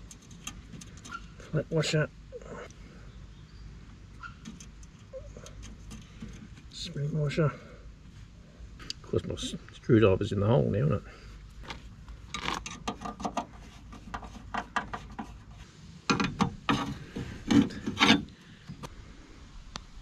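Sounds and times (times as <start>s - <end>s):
screwdriver scraping metal deck: 0.0s - 1.4s, 4.2s - 6.8s, 12.3s - 18.4s.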